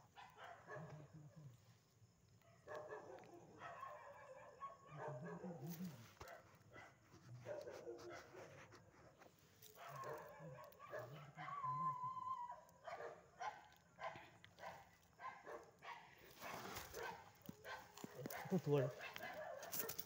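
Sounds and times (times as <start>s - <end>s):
dogs barking faintly: 0.0s - 20.0s.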